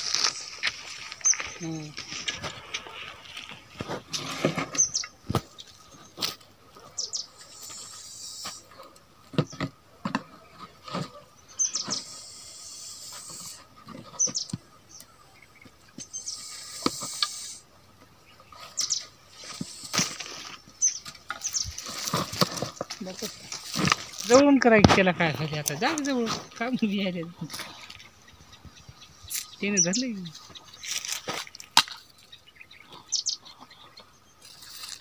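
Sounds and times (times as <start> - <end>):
snake hissing: 7.3 - 8.7, 11.7 - 13.8, 16.1 - 17.7, 18.8 - 20.7
stick tapping and scraping soil: 13.0 - 17.6, 18.6 - 28.1, 29.3 - 32.2, 34.0 - 35.0.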